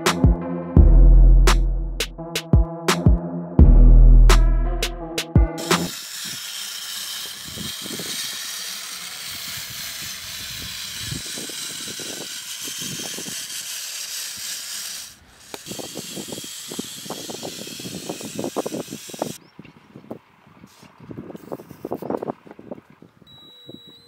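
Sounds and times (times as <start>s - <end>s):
toy electric motor hiss: 5.6s - 19.4s.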